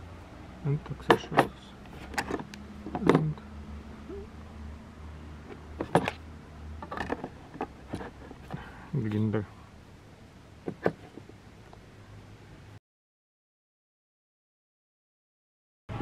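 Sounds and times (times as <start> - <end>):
low steady hum: 0.0 - 12.8.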